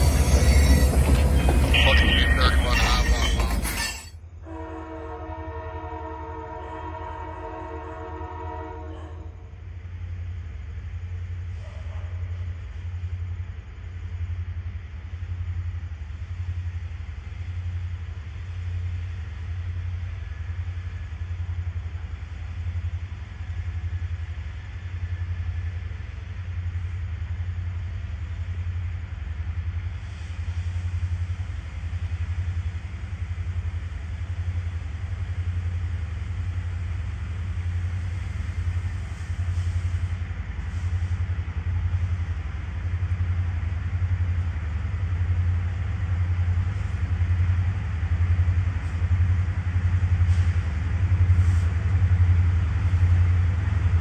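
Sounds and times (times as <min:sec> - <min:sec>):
locomotive engine rumble: 0:00.0 - 0:04.2.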